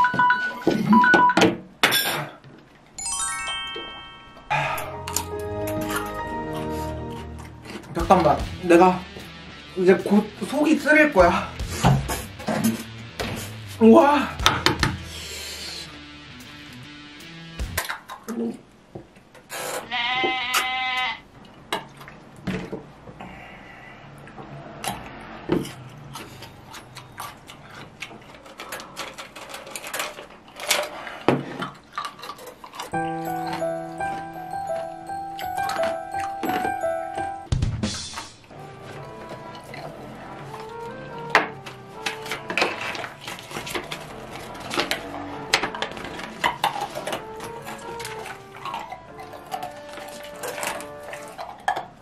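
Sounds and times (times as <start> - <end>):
light background music: 3.0 - 18.0, 32.9 - 52.0
crunching and chewing cucumber: 24.9 - 33.0, 38.7 - 52.0
stiff paper crackling: 38.7 - 51.5.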